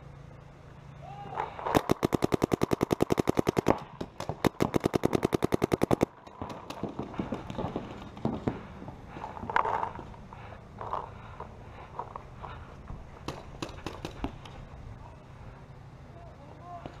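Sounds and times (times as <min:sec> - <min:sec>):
paintball marker rapid firing: 0:01.7 - 0:08.7, 0:13.2 - 0:14.6.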